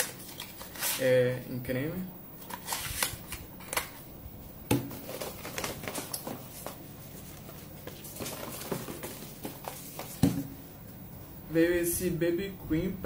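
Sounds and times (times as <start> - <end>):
cardboard packaging rustling: 0.0 - 1.1, 2.4 - 4.0, 4.9 - 10.6.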